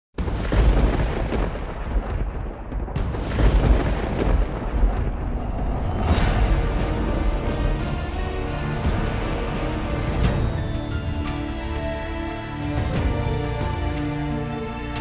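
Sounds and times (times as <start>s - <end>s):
deep thunder-like rumble: 0.2s - 10.6s
heavy booming hits: 0.2s - 10.8s.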